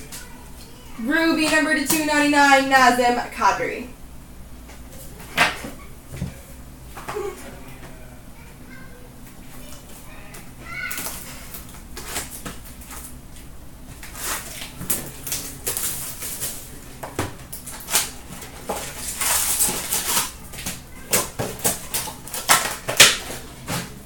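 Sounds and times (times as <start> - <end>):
card wrappers rustling and crackling: 10.9 - 24.0.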